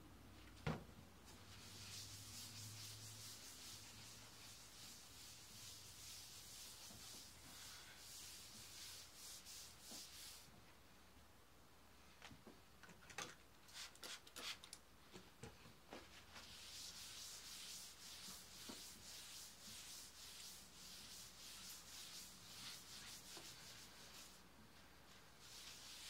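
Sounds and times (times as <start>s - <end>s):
paper towel rubbing on tabletop: 1.3s - 10.5s, 16.3s - 26.0s.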